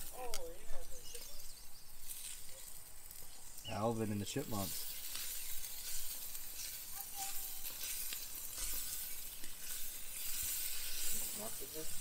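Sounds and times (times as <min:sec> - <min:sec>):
sausages sizzling on a grill: 0:00.0 - 0:12.0
metal tongs turning sausages: 0:02.0 - 0:03.7, 0:04.4 - 0:12.0.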